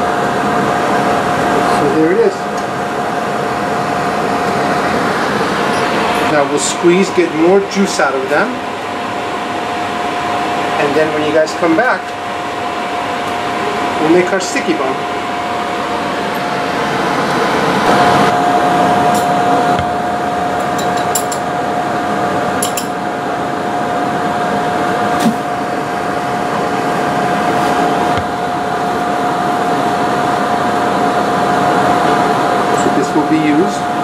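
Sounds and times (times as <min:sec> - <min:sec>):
fan blower whooshing: 0:00.0 - 0:34.0.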